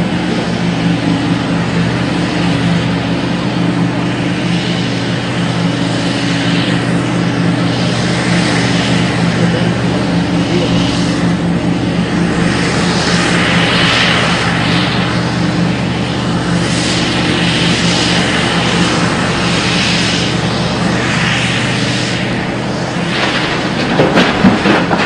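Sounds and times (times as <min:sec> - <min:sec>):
heavy diesel engines droning: 0:00.0 - 0:25.0
hiss: 0:12.4 - 0:25.0.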